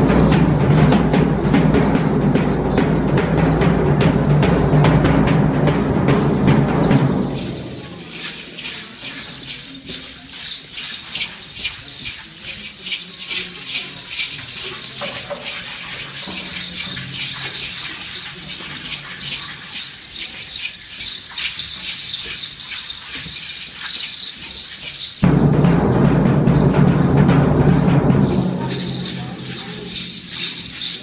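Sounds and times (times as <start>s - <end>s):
hand rattles shaken: 0.0s - 25.3s, 26.6s - 31.0s.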